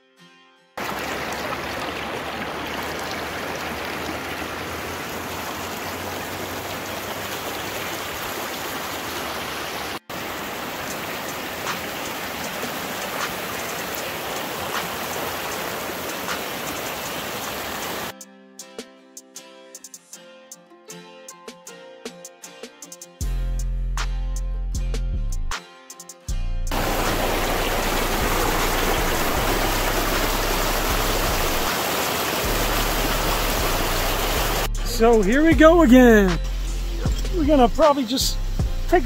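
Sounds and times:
creek flowing over rocks: 0.8 - 18.1, 26.7 - 34.7.

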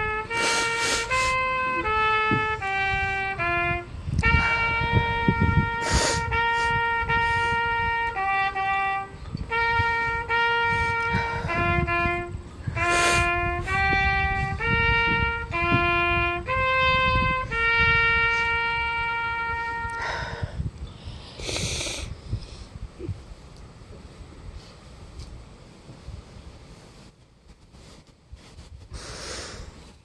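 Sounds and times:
slow trumpet melody: 0.0 - 20.5.

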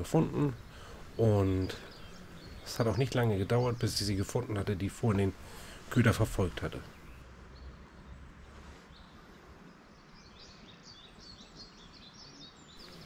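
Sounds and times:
small bird chirping: 0.2 - 5.3, 9.9 - 13.0.

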